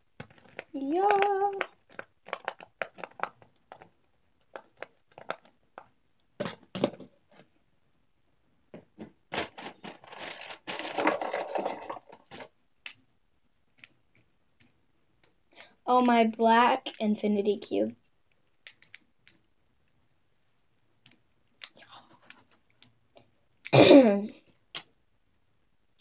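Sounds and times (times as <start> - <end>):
rustling and clattering of toys: 0.0 - 7.6, 8.7 - 25.0
small plastic clicks: 0.2 - 5.9, 18.0 - 19.5, 21.0 - 23.7.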